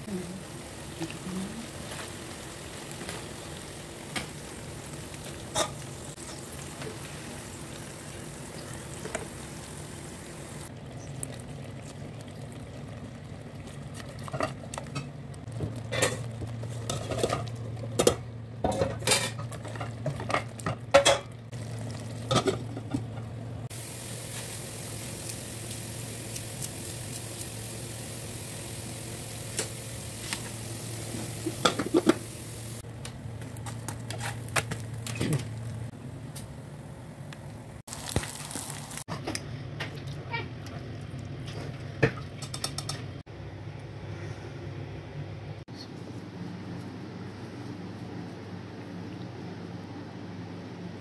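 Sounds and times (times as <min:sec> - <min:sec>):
food sizzling in oil: 0:00.0 - 0:11.1, 0:23.7 - 0:32.8, 0:37.9 - 0:39.1.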